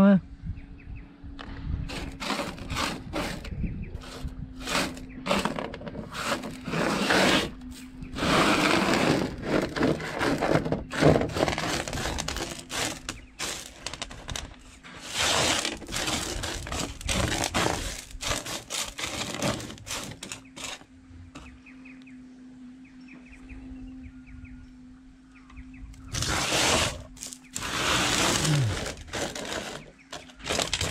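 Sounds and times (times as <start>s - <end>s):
pebbles scraping on sheet metal: 1.9s - 21.5s, 26.1s - 30.9s.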